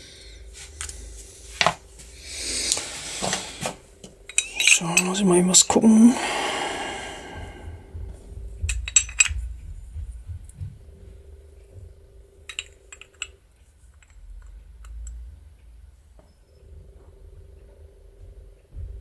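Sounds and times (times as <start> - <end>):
faint steady hum: 0.0 - 19.0
small metal parts clinking: 4.3 - 5.7, 8.7 - 9.4, 12.5 - 13.4.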